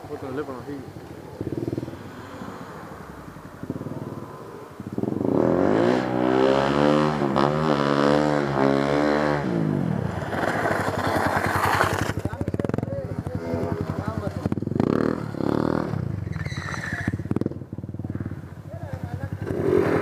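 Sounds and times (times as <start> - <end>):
small motorcycle engine revving: 5.0 - 12.8, 13.4 - 18.4, 19.1 - 20.0.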